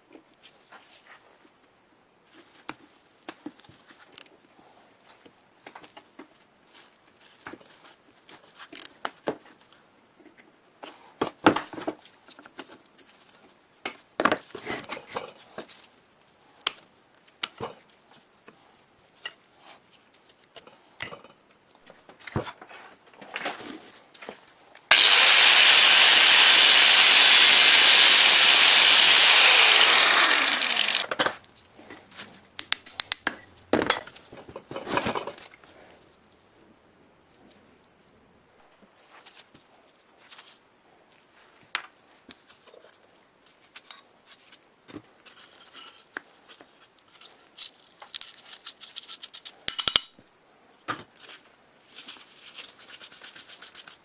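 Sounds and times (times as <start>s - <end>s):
clicks and scrapes of motor parts: 8.7s - 9.0s
workshop tool hissing: 24.9s - 31.1s.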